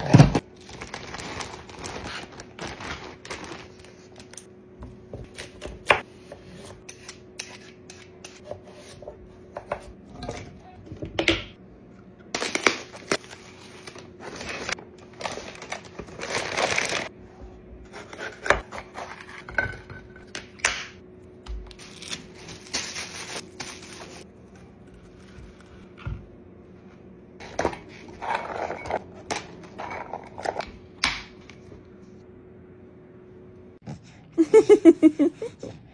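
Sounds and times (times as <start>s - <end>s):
vegetables rustling and crunching: 0.0s - 4.4s, 12.4s - 17.1s.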